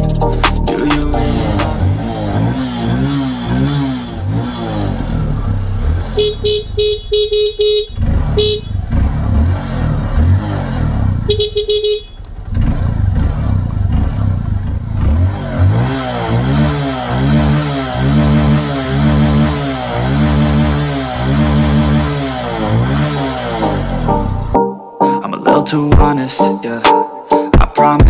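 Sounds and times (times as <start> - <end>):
motorcycle engine revving: 0.6 - 24.6
motorcycle horn short beeps: 6.1 - 8.8, 11.2 - 12.4.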